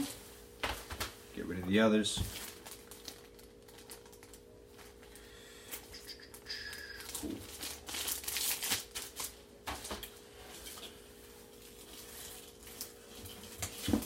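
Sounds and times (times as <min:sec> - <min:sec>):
plastic bag crinkling: 0:02.2 - 0:05.3, 0:06.6 - 0:10.8.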